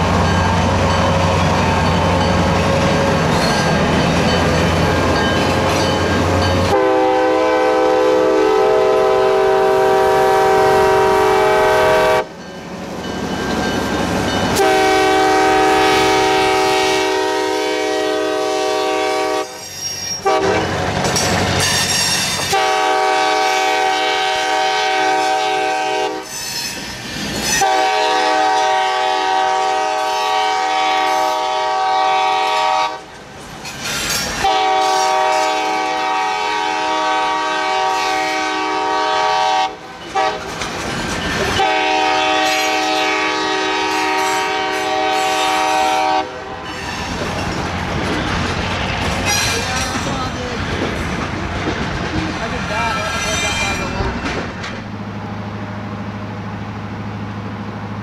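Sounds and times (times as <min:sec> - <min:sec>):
moving train noise: 0:00.0 - 0:58.0
locomotive air horn blasts: 0:06.7 - 0:12.3, 0:14.6 - 0:20.7, 0:22.5 - 0:26.4, 0:27.6 - 0:33.1, 0:34.4 - 0:40.5, 0:41.6 - 0:47.1.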